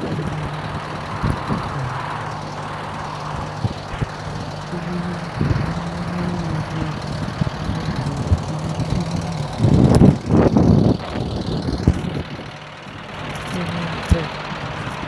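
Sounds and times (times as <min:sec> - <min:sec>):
diesel engine idling: 0:00.0 - 0:15.0
sharp engine knocks: 0:02.4 - 0:04.7.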